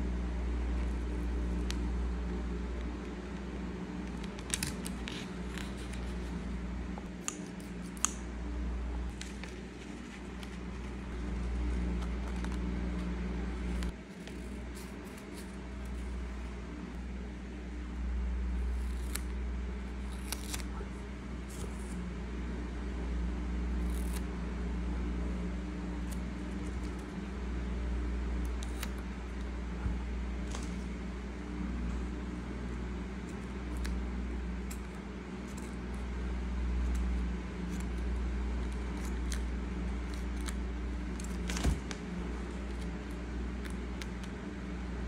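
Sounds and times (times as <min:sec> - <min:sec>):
low hum: 0:00.0 - 0:45.0
scissors snipping paper: 0:04.0 - 0:06.4, 0:07.1 - 0:08.2, 0:13.6 - 0:16.3, 0:18.6 - 0:19.4, 0:20.0 - 0:20.8, 0:23.8 - 0:24.3, 0:28.4 - 0:29.5, 0:33.2 - 0:34.0, 0:36.8 - 0:44.4
tape and paper crinkling: 0:04.0 - 0:06.5, 0:09.1 - 0:16.1, 0:37.7 - 0:44.4.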